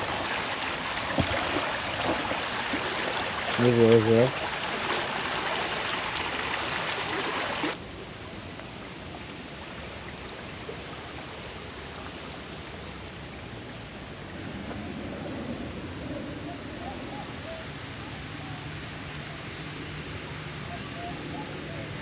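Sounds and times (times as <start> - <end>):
creek rippling over stones: 0.0 - 7.8.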